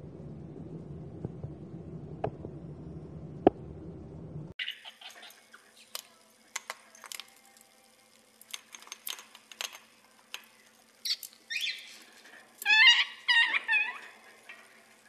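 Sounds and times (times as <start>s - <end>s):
parrot screeching: 4.6s - 5.4s, 11.0s - 11.9s, 12.6s - 14.6s
parrot warbling call: 11.0s - 11.9s, 12.6s - 14.6s.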